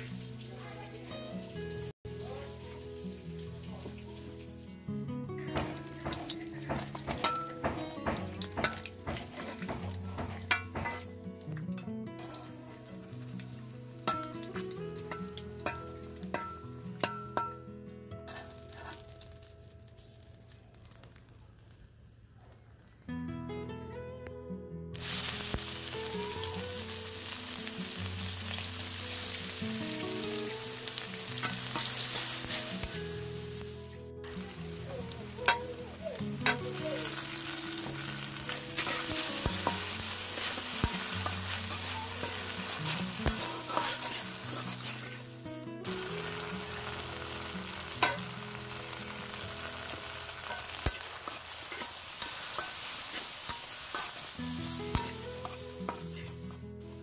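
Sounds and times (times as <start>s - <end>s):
onions sizzling in hot oil: 0.0s - 11.2s, 12.2s - 17.6s, 18.3s - 22.3s, 25.0s - 57.0s
metal spatula scraping pan: 8.6s - 11.1s, 18.3s - 19.2s, 30.9s - 33.0s, 37.8s - 45.3s, 48.0s - 48.2s, 50.2s - 56.6s.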